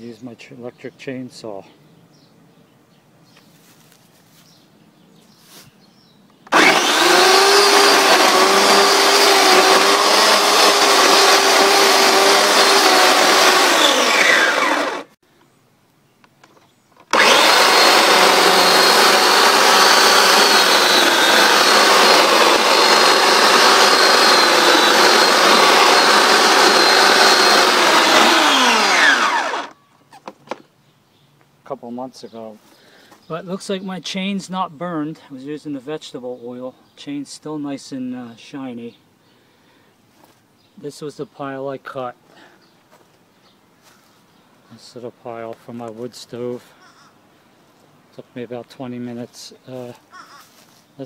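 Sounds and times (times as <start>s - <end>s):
electric chainsaw cutting log: 6.5s - 15.2s, 17.0s - 29.8s.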